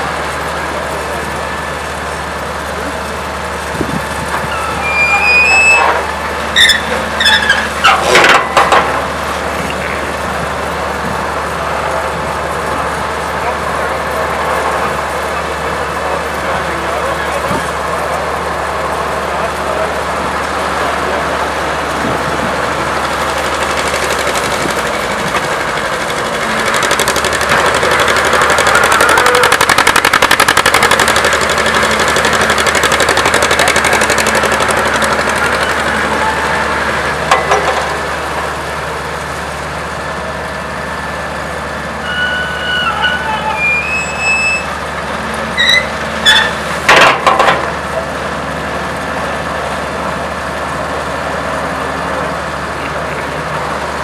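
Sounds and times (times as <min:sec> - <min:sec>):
shovel engine running: 0:00.0 - 0:54.0
short squeals: 0:04.4 - 0:08.2, 0:41.9 - 0:44.9, 0:45.5 - 0:46.7.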